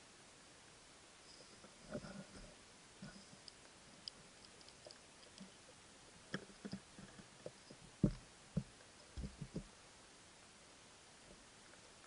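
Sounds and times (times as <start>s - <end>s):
underwater clicks and knocks: 6.3s - 9.7s.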